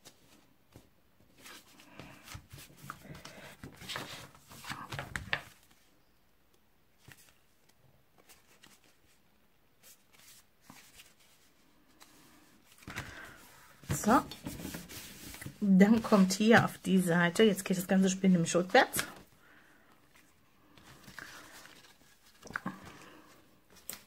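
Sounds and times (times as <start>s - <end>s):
cardstock rustling and scraping: 12.7s - 17.1s, 20.2s - 24.0s.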